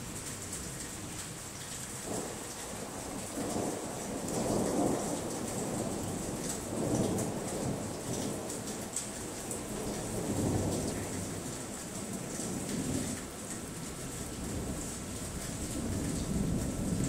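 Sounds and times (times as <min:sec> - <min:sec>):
steady rain falling: 0:00.0 - 0:17.0
thunder rumbling: 0:15.6 - 0:17.0.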